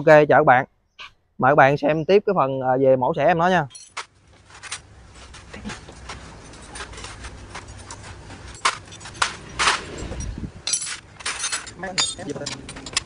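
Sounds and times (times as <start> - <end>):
clicks on metal parts: 6.4 - 13.0.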